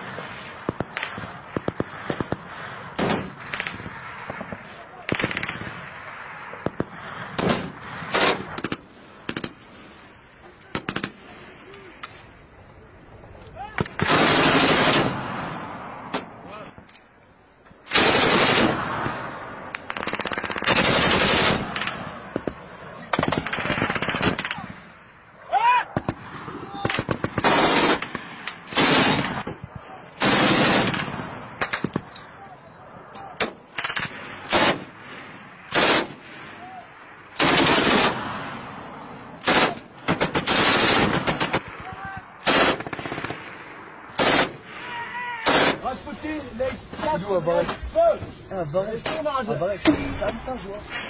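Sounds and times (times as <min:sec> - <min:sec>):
automatic weapon firing bursts: 0:05.1 - 0:05.7, 0:06.6 - 0:09.6, 0:13.9 - 0:15.4, 0:17.9 - 0:24.6, 0:27.0 - 0:29.6, 0:30.2 - 0:32.1, 0:33.8 - 0:35.0, 0:35.7 - 0:36.2, 0:37.4 - 0:38.4, 0:39.4 - 0:41.8, 0:42.4 - 0:44.6.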